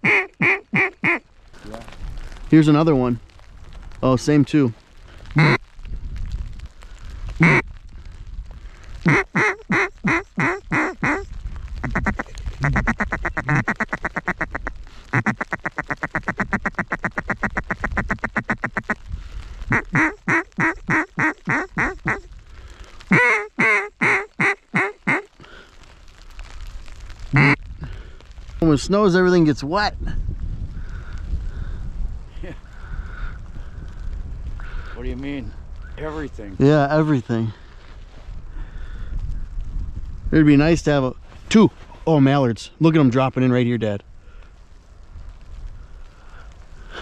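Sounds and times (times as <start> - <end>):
goose call honks and clucks: 0.0 - 1.2, 5.4 - 5.6, 7.4 - 7.6, 9.0 - 18.9, 19.7 - 22.3, 23.1 - 25.3, 27.4 - 27.6.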